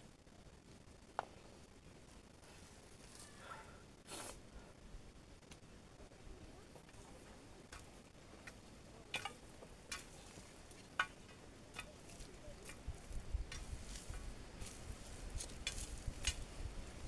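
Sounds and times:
scraping and crackling of dry grass: 1.1 - 4.5, 6.9 - 17.0.

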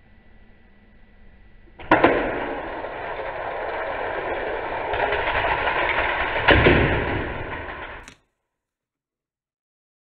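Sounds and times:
toy cars rattling down plastic track: 1.8 - 8.2
spring launcher snapping: 7.7 - 8.2.

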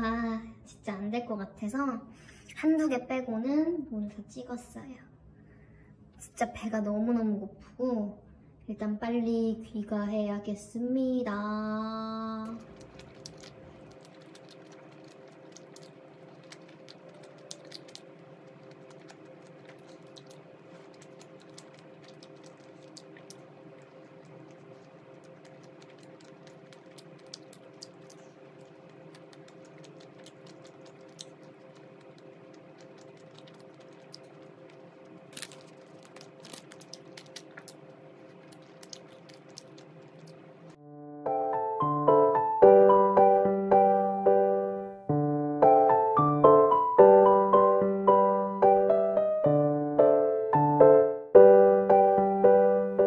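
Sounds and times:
faint clicks and taps: 12.5 - 40.8.

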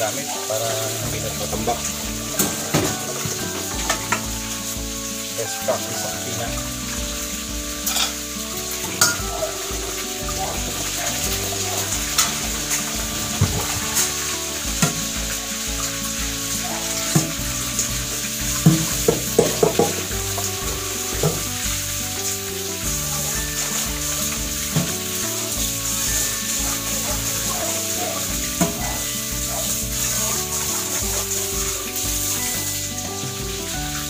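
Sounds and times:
tap water running into sink: 0.0 - 34.0
metal pot knocking and clinking: 1.5 - 4.6, 7.8 - 8.2, 8.8 - 14.1, 18.6 - 21.5, 28.5 - 29.0.

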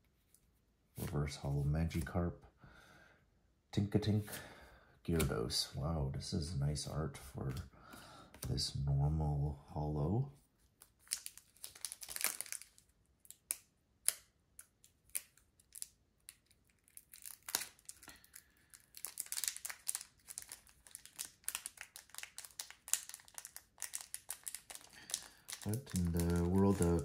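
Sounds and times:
foil wrappers crinkling and tearing: 10.8 - 14.2, 14.8 - 27.0.

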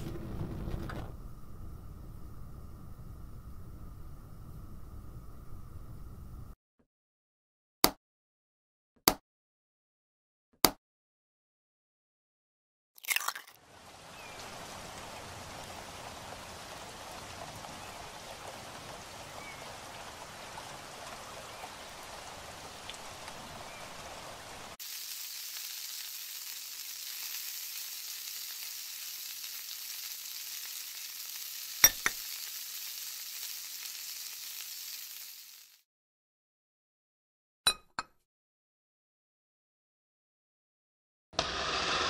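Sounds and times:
food sizzling in a pan: 13.2 - 35.8, 41.4 - 42.0.

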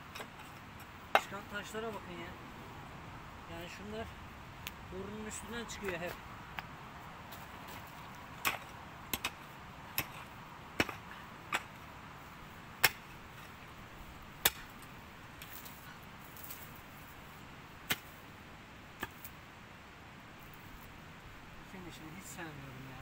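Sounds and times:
digging tool striking stony soil: 0.0 - 2.0, 7.3 - 11.9, 12.8 - 13.6, 14.4 - 15.8, 17.8 - 18.2, 19.0 - 19.3.

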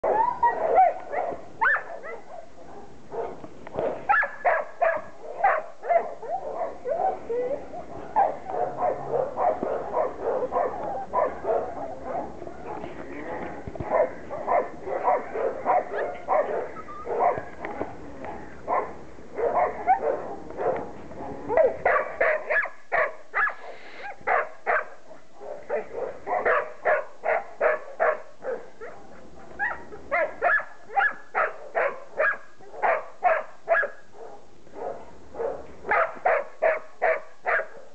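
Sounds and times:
puppies yipping and barking: 14.5 - 17.6.

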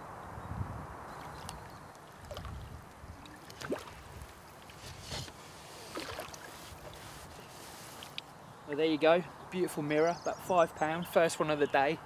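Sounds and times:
fish splashing in water: 1.2 - 4.8, 5.8 - 7.0.

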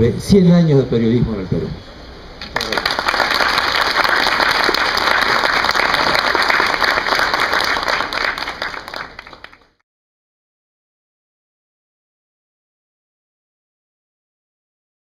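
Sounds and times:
audience applause: 2.4 - 9.8.

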